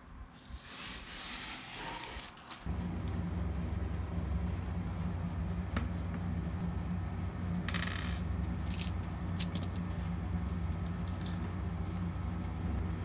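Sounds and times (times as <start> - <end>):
steady low hum: 2.7 - 13.0.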